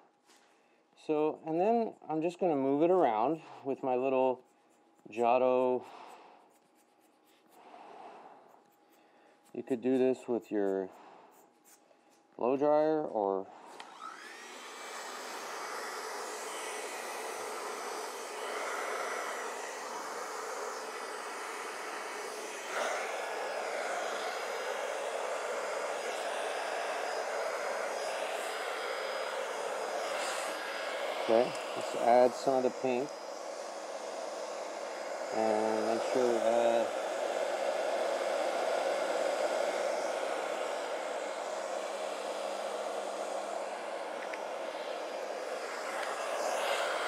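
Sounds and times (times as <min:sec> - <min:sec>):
hair dryer blowing: 0:05.1 - 0:06.5, 0:12.4 - 0:47.0.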